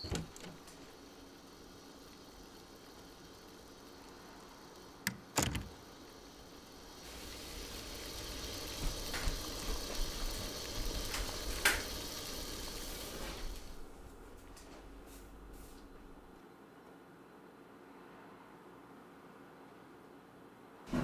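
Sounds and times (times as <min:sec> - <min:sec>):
pot boiling with bubbling: 0:00.0 - 0:14.6.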